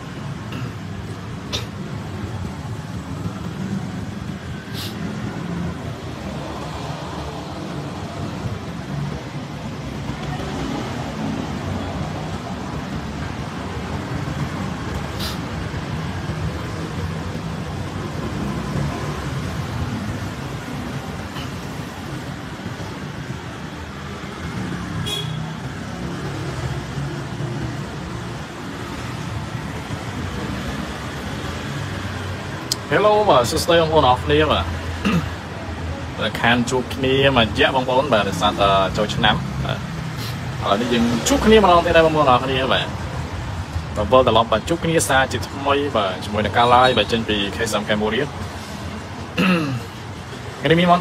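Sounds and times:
road traffic rumble: 0.0 - 51.0
short hiss: 4.7 - 5.0, 15.1 - 15.4.

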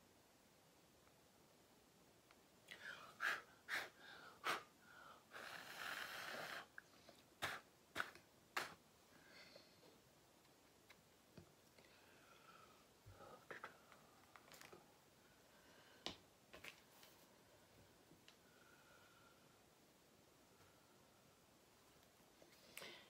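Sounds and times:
person sniffing: 2.8 - 4.7, 7.4 - 9.6.

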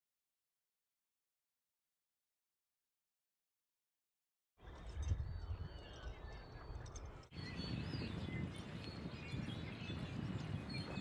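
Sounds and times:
small birds chirping: 4.6 - 11.0
wind rumbling on microphone: 4.6 - 11.0.

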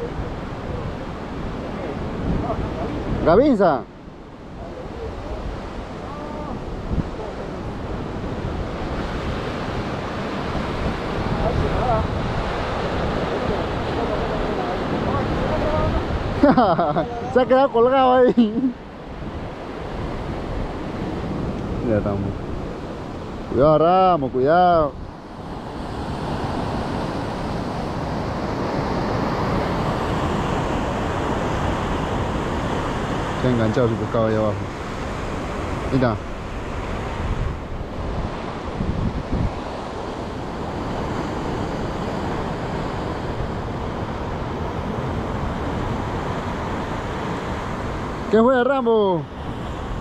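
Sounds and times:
surf washing against rocks: 0.0 - 50.0
wind buffeting microphone: 0.0 - 50.0.

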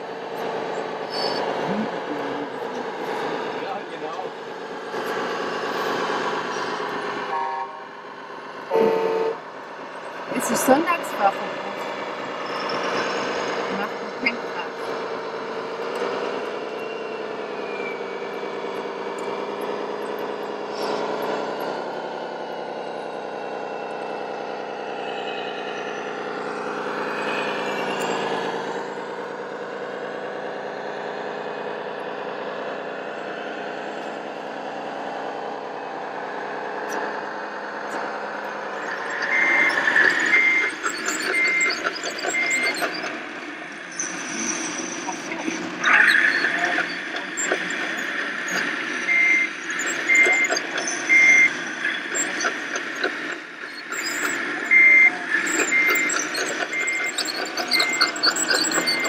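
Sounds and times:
toy diesel engine sound: 0.0 - 59.0
reversing alarm beeps: 38.0 - 43.2, 44.0 - 59.0.

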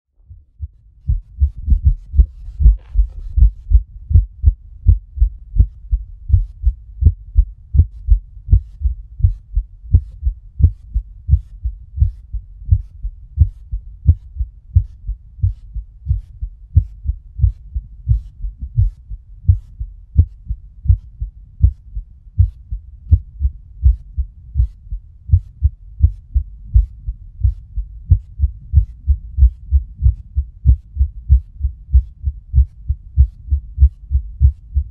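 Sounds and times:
heartbeat through stethoscope: 0.2 - 34.9.

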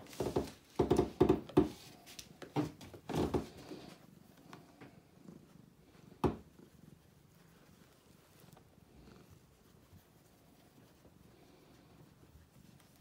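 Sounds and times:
cat purring: 3.0 - 13.0.

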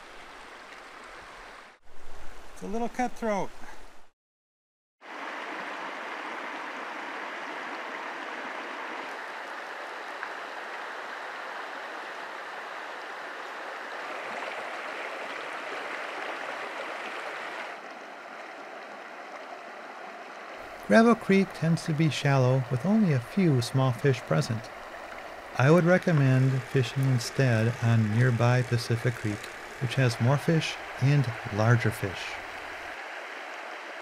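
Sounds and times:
creek flowing over gravel: 0.0 - 1.8, 5.0 - 34.0.

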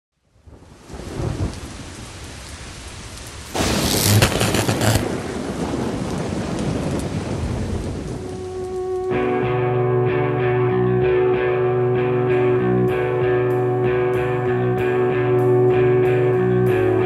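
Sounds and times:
steady rain: 0.1 - 10.9
thunder rumbling and crackling: 0.4 - 9.5.

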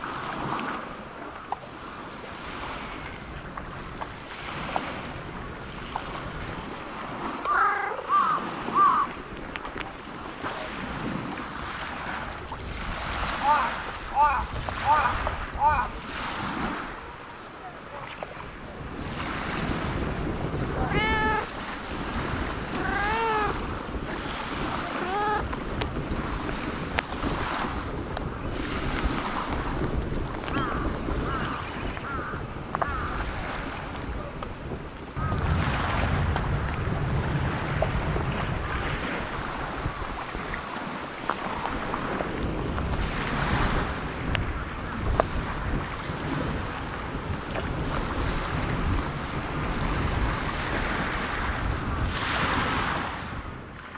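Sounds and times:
wind on microphone: 0.0 - 53.9
cat meowing: 7.5 - 8.2, 20.8 - 21.5, 22.8 - 23.6, 25.0 - 25.4.

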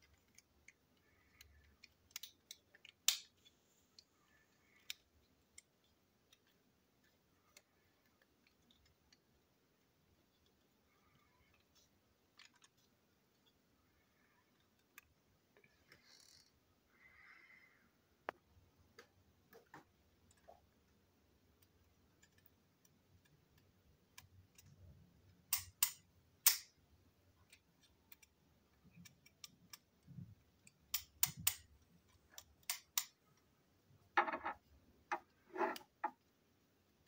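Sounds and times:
plastic parts clicking: 0.0 - 9.4, 10.1 - 13.6, 21.5 - 26.8, 27.4 - 33.4
plastic parts rattling: 10.2 - 13.5.

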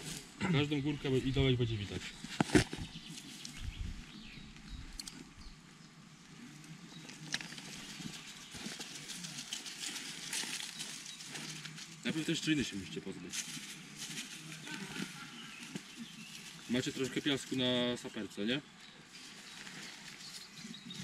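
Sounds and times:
soil and grass crumbling: 6.9 - 18.0, 19.1 - 21.0.

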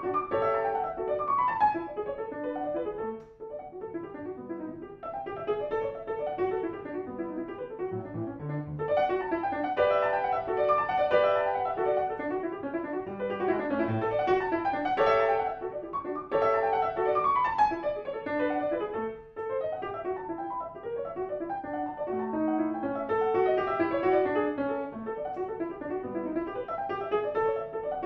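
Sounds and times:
solo grand piano classical music: 0.0 - 28.0.

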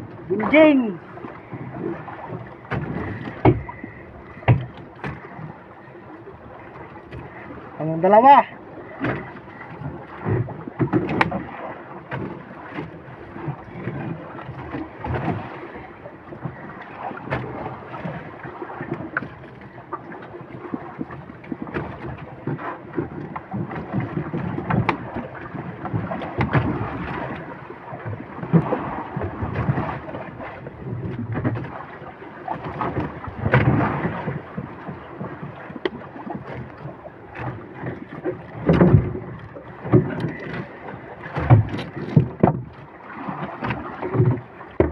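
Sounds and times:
wind rumbling on microphone: 0.0 - 7.8
sea noise: 0.0 - 44.9
knocks on boat: 1.6 - 5.4, 9.0 - 9.3, 10.2 - 11.5, 21.0 - 27.4, 32.6 - 44.9.

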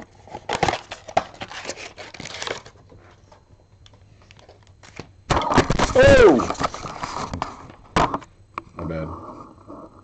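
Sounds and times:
card packs rustling and crinkling: 0.0 - 3.2.

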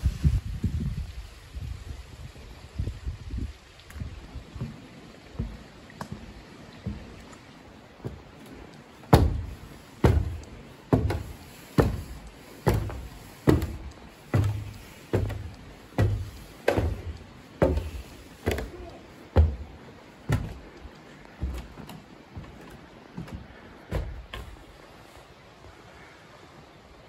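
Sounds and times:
footsteps on wooden stairs: 3.9 - 24.9.

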